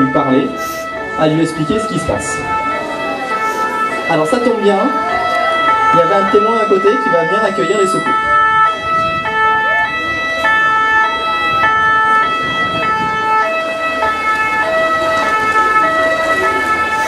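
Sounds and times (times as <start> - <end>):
two-tone ambulance siren: 0.0 - 17.0.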